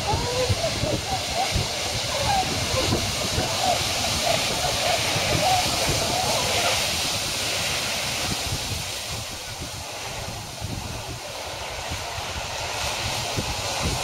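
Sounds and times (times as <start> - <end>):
ocean waves and surf: 0.0 - 14.0
wind buffeting microphone: 0.0 - 14.0.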